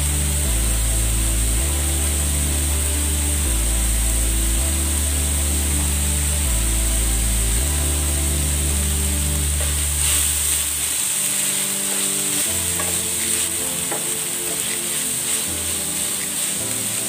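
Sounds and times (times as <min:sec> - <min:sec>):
low background music: 0:00.0 - 0:17.0
meat and onions sizzling: 0:00.0 - 0:17.0
spatula scraping a pan: 0:09.6 - 0:17.0.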